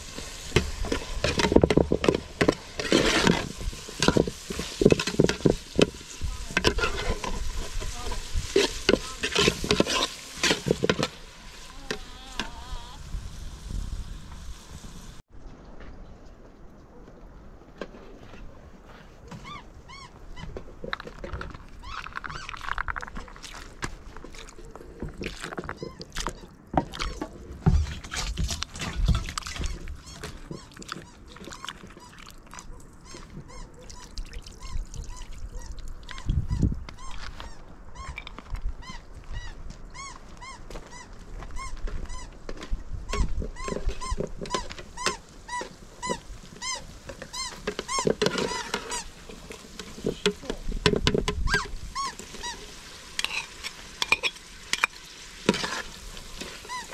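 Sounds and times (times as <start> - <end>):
water pouring and splashing: 0.0 - 15.2, 21.1 - 32.7, 43.7 - 56.9
bird calling: 29.2 - 42.4.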